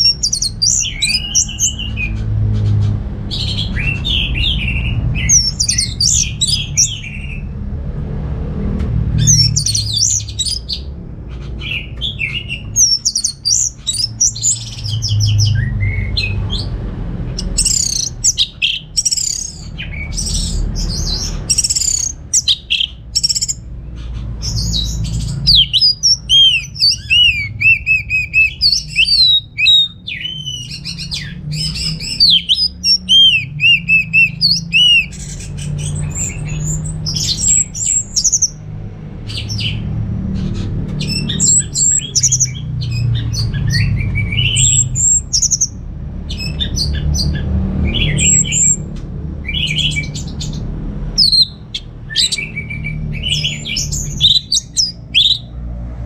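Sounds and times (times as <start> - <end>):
thrush singing whistled phrases: 25.4 - 38.6.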